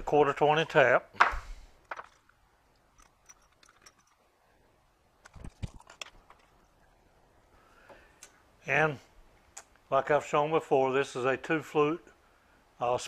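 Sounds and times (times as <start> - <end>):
metal tools clicking and knocking: 1.9 - 4.3.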